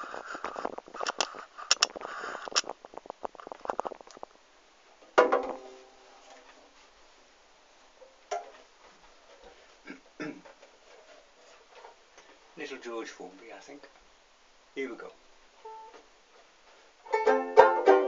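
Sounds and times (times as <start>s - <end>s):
faint plucked knock: 5.2s - 5.8s
ukulele strum: 5.2s - 6.0s, 17.0s - 18.0s.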